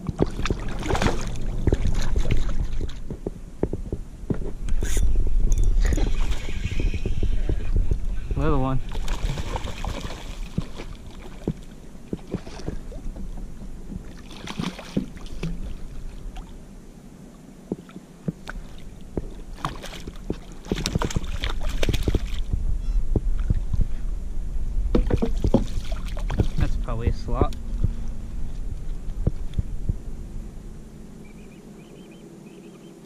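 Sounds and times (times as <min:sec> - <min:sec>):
water moving around hull: 0:00.0 - 0:32.9
loud low rumble: 0:00.4 - 0:09.5, 0:21.8 - 0:25.0, 0:26.2 - 0:31.8
knocks and clicks on kayak: 0:24.9 - 0:26.6.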